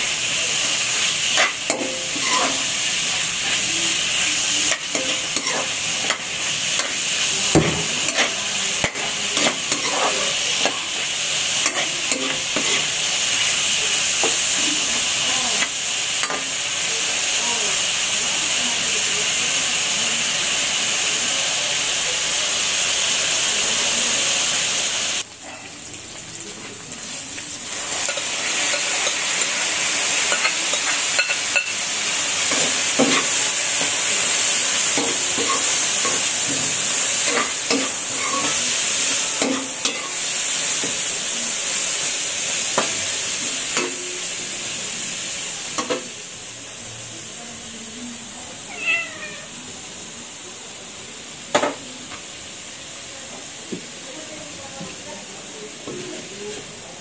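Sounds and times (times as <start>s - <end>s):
food sizzling in a wok: 0.0s - 57.0s
metal spatula scraping a pan: 1.3s - 2.7s, 8.1s - 10.3s.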